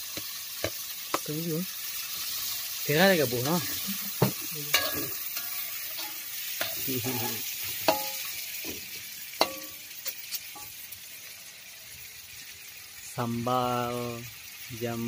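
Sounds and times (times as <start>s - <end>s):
food sizzling in a wok: 0.0s - 15.0s
metal spatula scraping and clanking: 3.3s - 10.8s.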